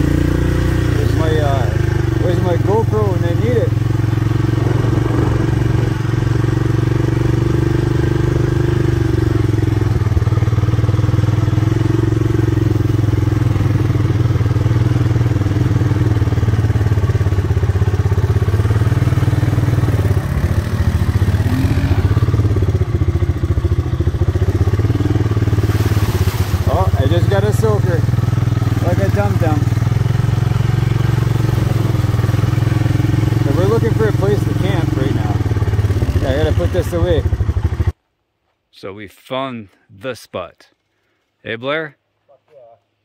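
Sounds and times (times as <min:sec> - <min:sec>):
four-stroke engine running: 0:00.0 - 0:38.0.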